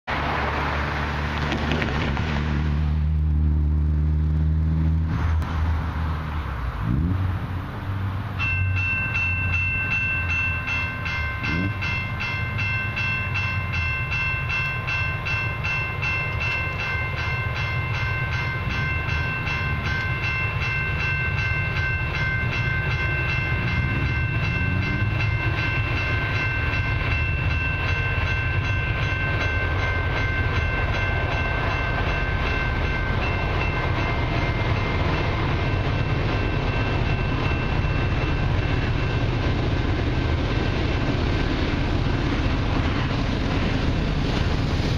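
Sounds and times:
level crossing warning bells: 8.2 - 44.0.

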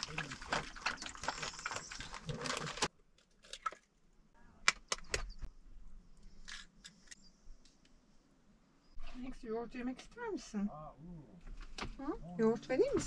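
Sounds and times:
plastic bag rustling: 0.0 - 2.9.

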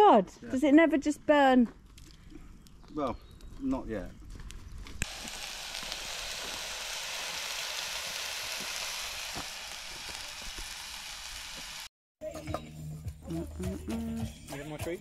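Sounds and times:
meat sizzling with crackles: 4.8 - 11.9.

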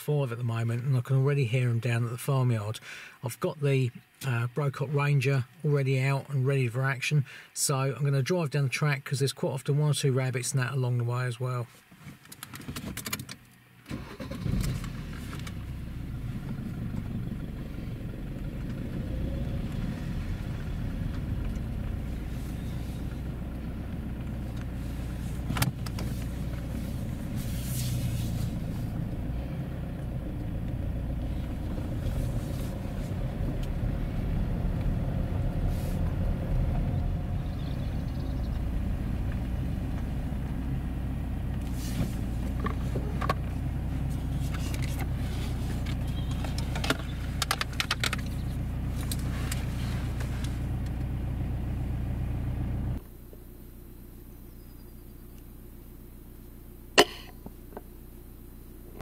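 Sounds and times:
car engine and tyres rumbling: 11.8 - 59.0.

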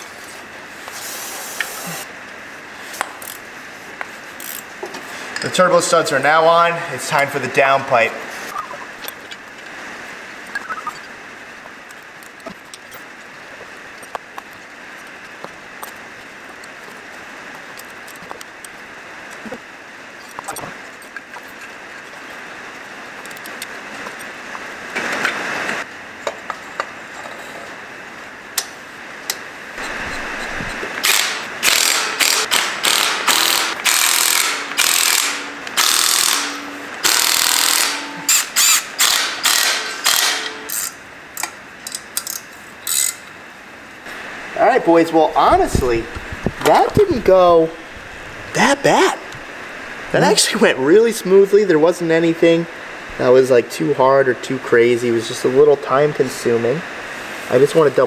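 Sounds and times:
cordless power tool driving fasteners: 31.0 - 41.0.

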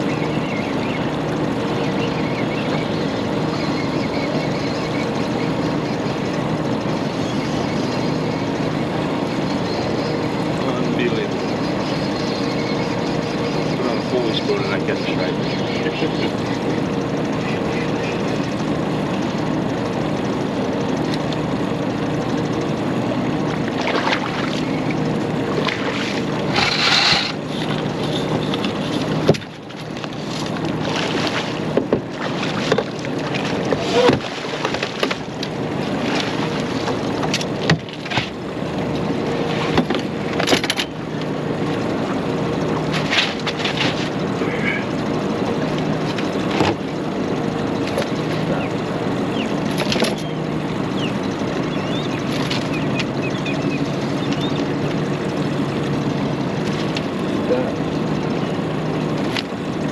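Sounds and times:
boat hum: 0.0 - 59.9
water noise: 0.0 - 59.9
water splashing: 23.5 - 40.3
knocks on boat: 31.3 - 32.9, 33.7 - 35.2.

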